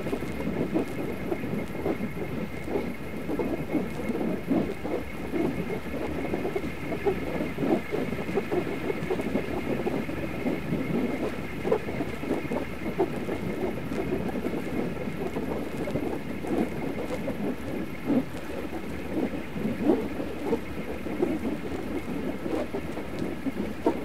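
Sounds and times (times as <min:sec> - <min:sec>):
fluttering whoosh of elastic cords: 0:00.0 - 0:24.0.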